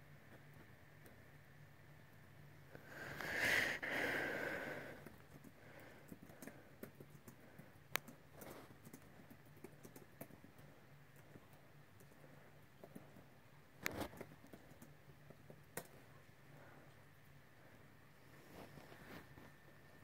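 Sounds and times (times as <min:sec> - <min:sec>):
typing on a laptop keyboard: 0:05.0 - 0:12.2, 0:12.8 - 0:16.0.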